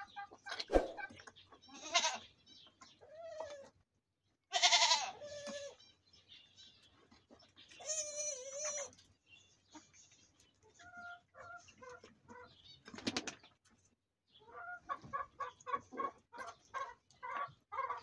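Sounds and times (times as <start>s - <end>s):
goats bleating: 4.5s - 5.2s.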